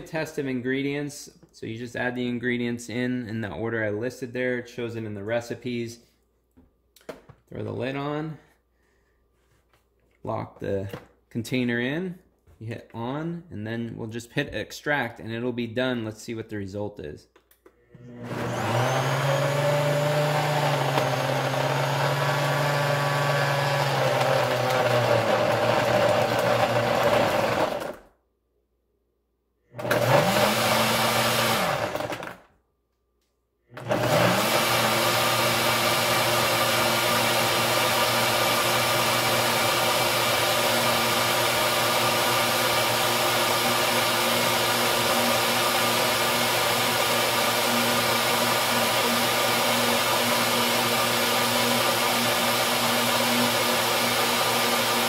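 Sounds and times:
blender motor running: 18.0 - 28.1, 29.8 - 32.5, 33.8 - 55.0.

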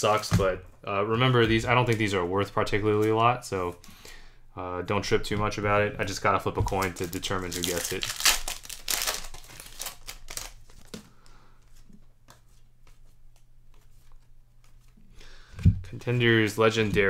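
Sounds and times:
cards rustling: 6.0 - 15.1
wrapper crinkling and tearing: 6.6 - 11.0.

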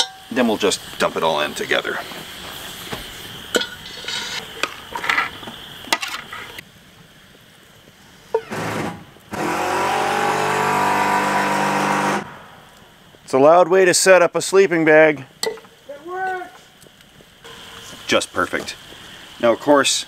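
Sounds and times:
metal utensil scraping skillet: 3.5 - 6.6.

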